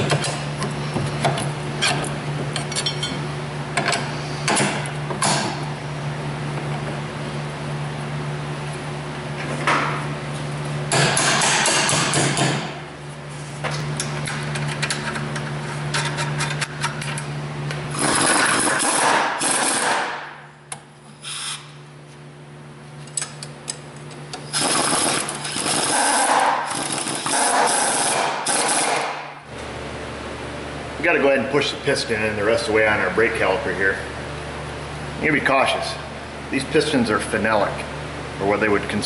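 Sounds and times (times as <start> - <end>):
impact wrench hammering: 10.9 - 12.8, 17.9 - 20.4, 24.4 - 29.4.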